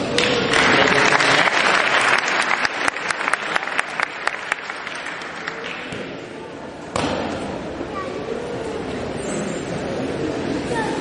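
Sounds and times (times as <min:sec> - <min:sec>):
audience applauding: 0:00.2 - 0:05.9.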